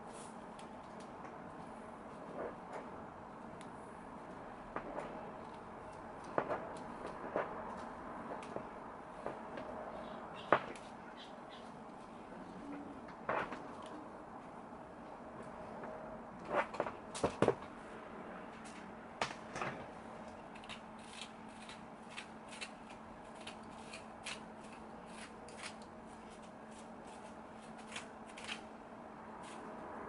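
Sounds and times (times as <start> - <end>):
faint steady hum: 0.0 - 30.0
plastic comb through wig hair: 20.5 - 28.7.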